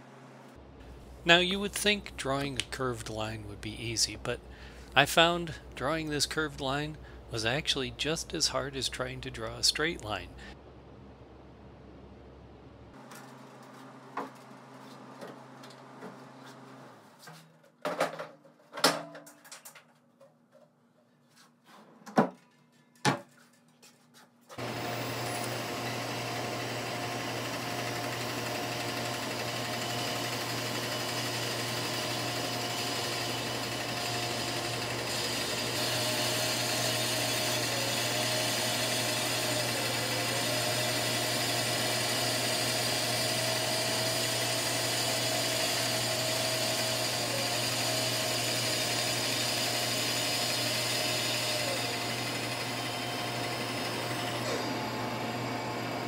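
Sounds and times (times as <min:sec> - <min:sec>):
bandsaw cutting wood: 0:24.6 - 0:56.0.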